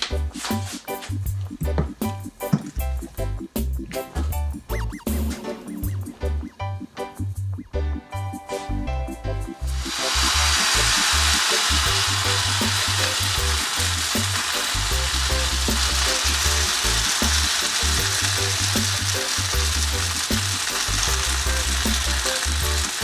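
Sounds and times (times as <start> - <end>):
background music with bass beat: 0.0 - 10.5
batter sizzling in oil: 9.6 - 23.0.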